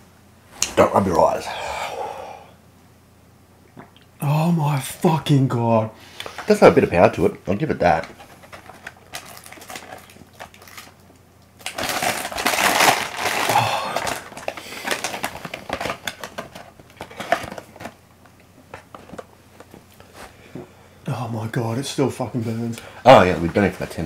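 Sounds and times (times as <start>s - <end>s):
chip packaging crinkling: 7.8s - 18.0s.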